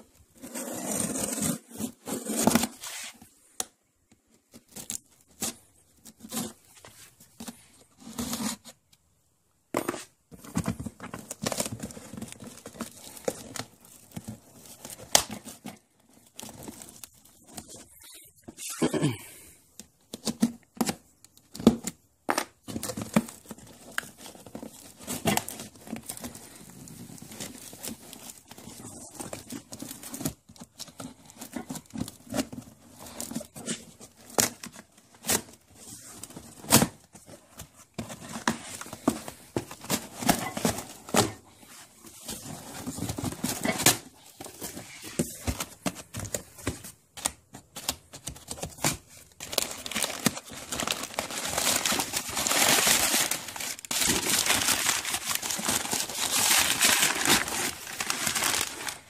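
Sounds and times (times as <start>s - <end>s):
cardboard tearing and scraping: 0.4s - 3.2s, 22.7s - 59.0s
packing paper crinkling: 10.4s - 18.2s, 22.6s - 59.0s.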